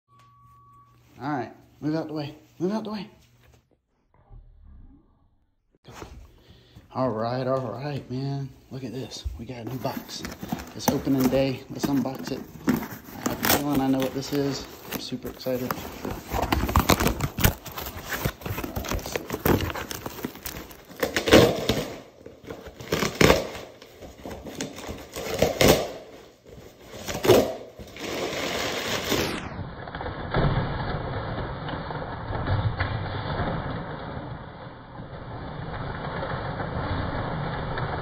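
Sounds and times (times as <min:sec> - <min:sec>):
packing paper rustling: 0:08.9 - 0:29.4
cardboard box tearing: 0:09.8 - 0:23.7.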